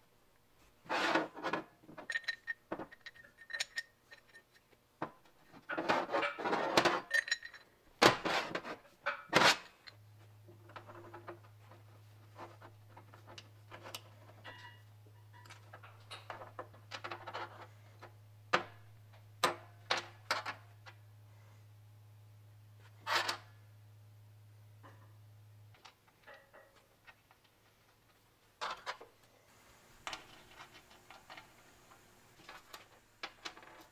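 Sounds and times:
low steady hum: 0:07.0 - 0:33.9.

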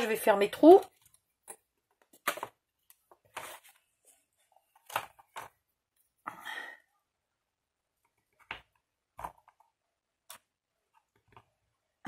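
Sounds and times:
cardstock rustling: 0:02.0 - 0:05.7.

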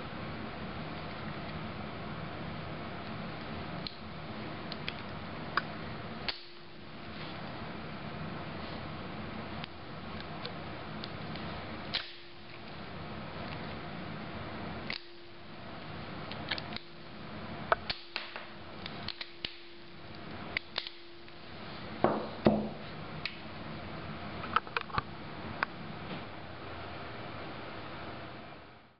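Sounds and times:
heavy knocks: 0:22.0 - 0:22.8.

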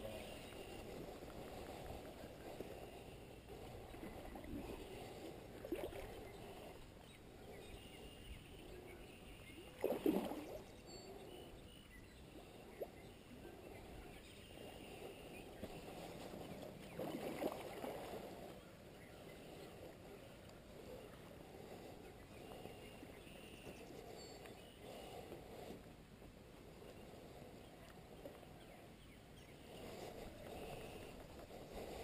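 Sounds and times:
water splashing and sloshing: 0:03.5 - 0:06.9, 0:09.6 - 0:10.7, 0:14.6 - 0:20.0.

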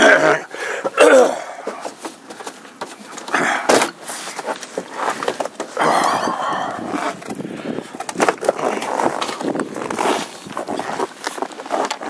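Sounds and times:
blizzard wind gusting: 0:05.9 - 0:08.0.

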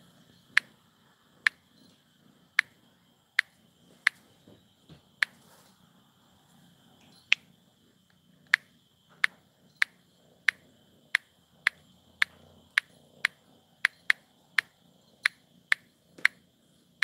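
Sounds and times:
faint high whine: 0:00.0 - 0:17.0
sharp clicks: 0:00.5 - 0:00.7, 0:03.4 - 0:04.2, 0:07.3 - 0:07.5, 0:08.4 - 0:16.4.

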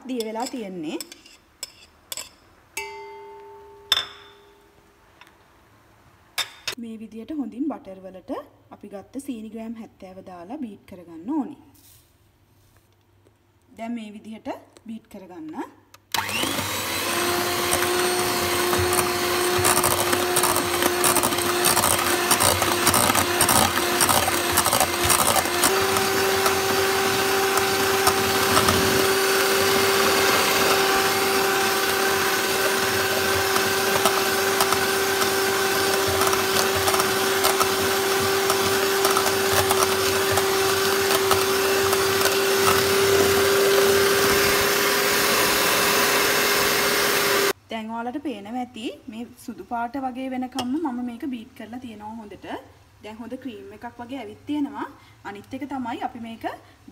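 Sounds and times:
electric hand mixer running: 0:16.2 - 0:47.5.

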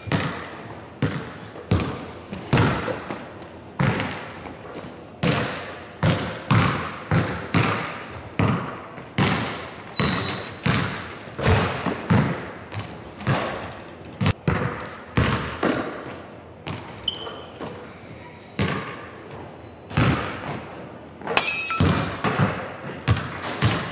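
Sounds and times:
basketball bouncing on wooden floor: 0:00.0 - 0:02.9, 0:03.8 - 0:04.2, 0:05.2 - 0:13.6, 0:14.2 - 0:15.8, 0:16.6 - 0:17.2, 0:20.0 - 0:20.4, 0:21.8 - 0:23.9.

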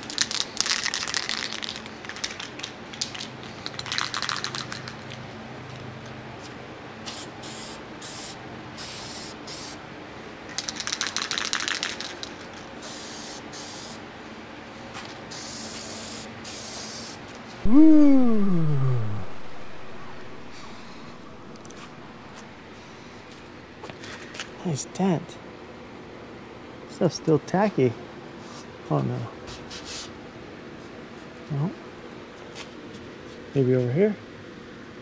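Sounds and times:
spray paint can hissing: 0:07.1 - 0:09.8, 0:10.6 - 0:14.0, 0:15.3 - 0:17.2
loud cry falling in pitch: 0:17.6 - 0:22.1.

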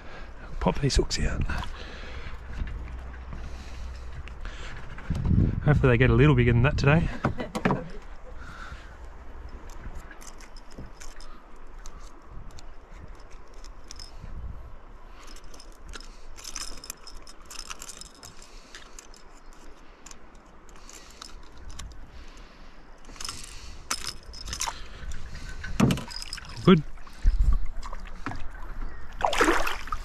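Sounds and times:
metallic clicking and jingling of lure: 0:09.4 - 0:14.4, 0:15.2 - 0:22.4, 0:23.0 - 0:27.4.

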